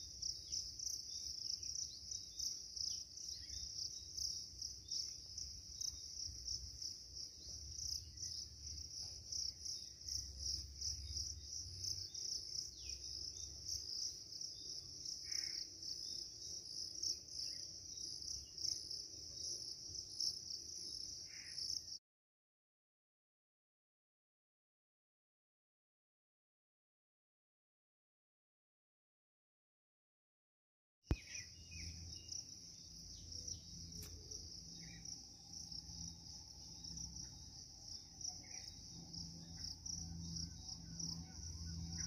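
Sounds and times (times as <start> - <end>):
insects chirring: 31.2 - 42.0.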